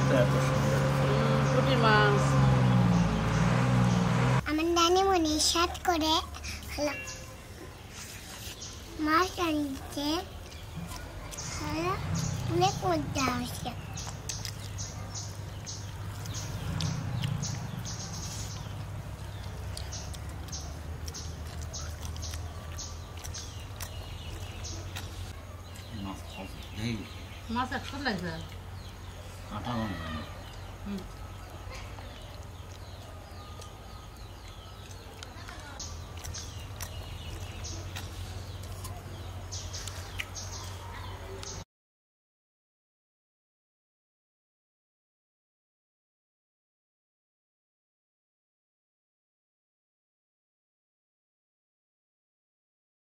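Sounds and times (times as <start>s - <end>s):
small birds chirping: 0.0s - 41.7s.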